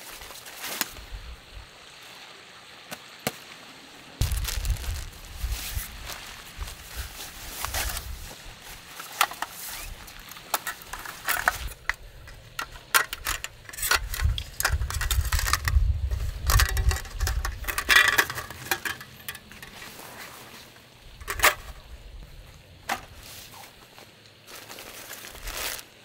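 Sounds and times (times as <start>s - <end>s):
fabric bags rustling: 4.2s - 10.2s, 23.1s - 26.0s
aluminium camp gear clinking: 6.8s - 20.6s, 21.2s - 21.9s.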